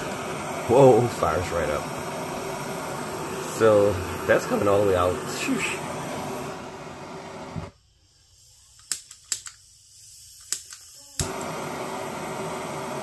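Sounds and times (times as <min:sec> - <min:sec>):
torch flame hissing: 0:00.0 - 0:13.0
torch control clicks: 0:08.7 - 0:09.7, 0:10.3 - 0:11.7.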